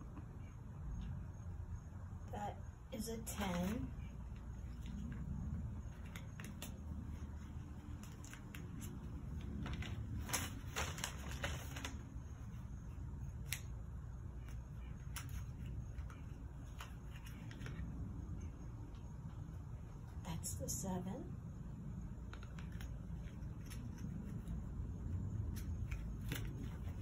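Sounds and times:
tissue paper rustling: 5.9 - 12.6.

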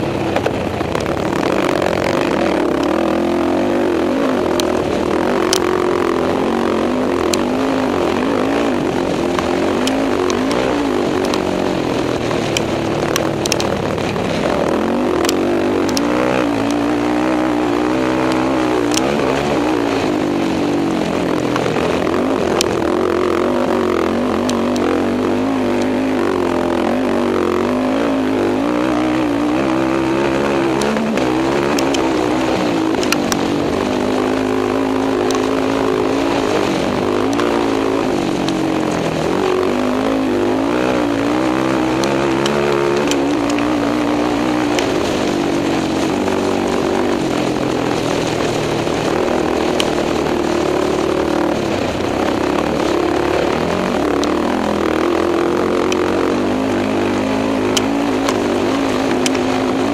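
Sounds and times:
quad engine revving: 0.0 - 59.9
sharp clicks: 0.3 - 11.5, 12.4 - 16.9, 29.6 - 34.4, 35.0 - 43.8, 57.4 - 59.7.

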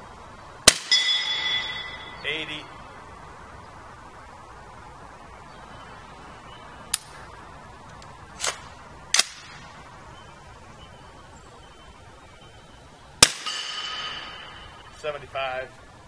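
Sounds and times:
suppressed rifle shot: 8.4 - 9.8, 13.2 - 14.5.

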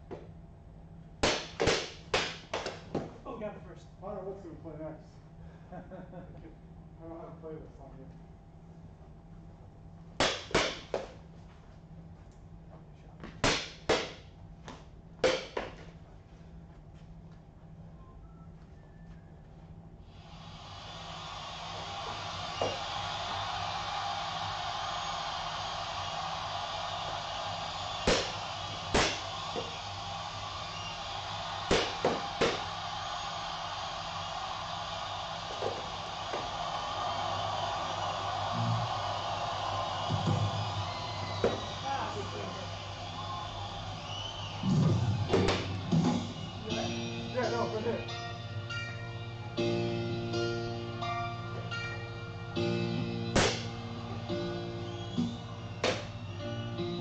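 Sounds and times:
room hiss: 20.0 - 28.0.

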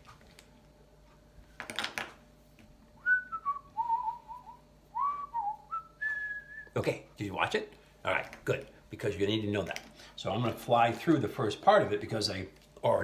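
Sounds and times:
man whistling a tune: 3.0 - 6.8.

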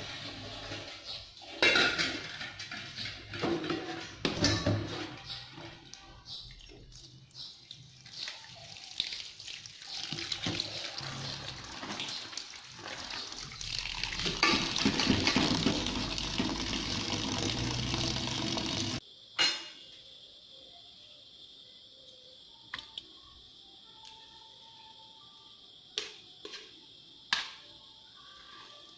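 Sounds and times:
tap water running into pot: 8.0 - 19.0.

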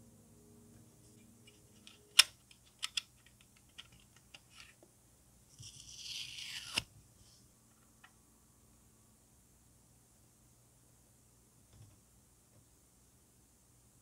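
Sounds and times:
plastic parts clicking and tapping: 1.9 - 4.8
film peeling off plastic: 5.6 - 6.9.

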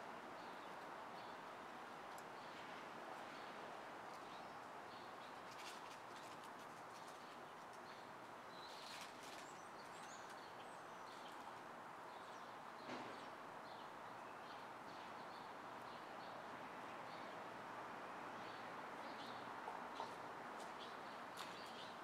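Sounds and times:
distant street traffic hum: 0.0 - 22.0
small birds chirping: 4.1 - 13.0.

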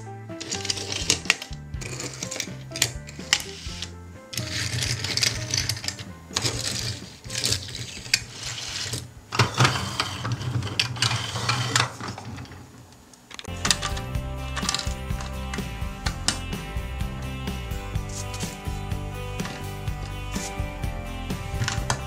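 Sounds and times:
background music: 0.0 - 10.4, 13.5 - 22.0
toy cars rolling on tabletop: 0.4 - 14.0.

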